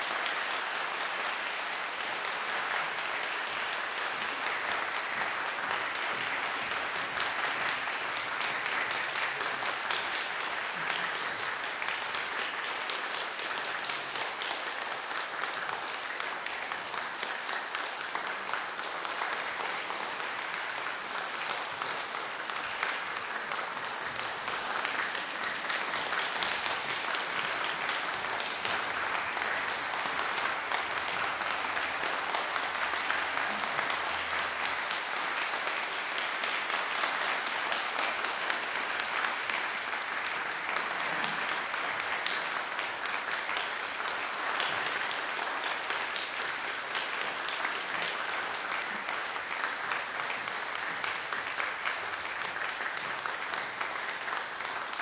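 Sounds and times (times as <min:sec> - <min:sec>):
audience applauding: 0:00.0 - 0:55.0.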